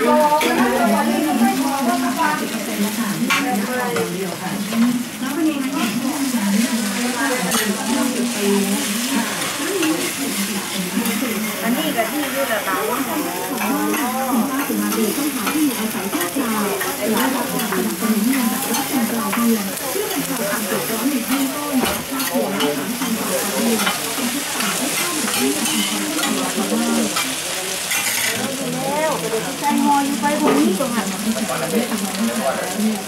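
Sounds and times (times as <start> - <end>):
food sizzling in a pan: 0.0 - 33.0.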